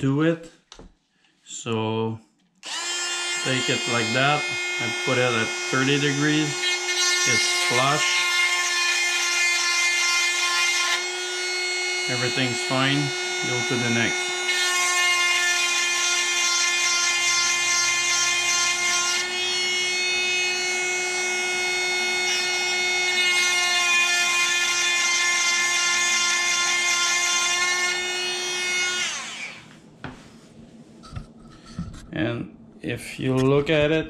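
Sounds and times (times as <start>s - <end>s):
chain sharpener motor whining: 2.6s - 5.8s.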